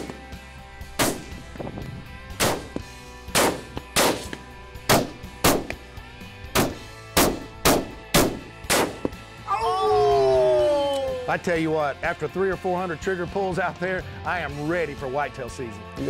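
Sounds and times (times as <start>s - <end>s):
rifle shots: 1.0s - 1.4s, 2.3s - 5.8s, 6.5s - 9.2s.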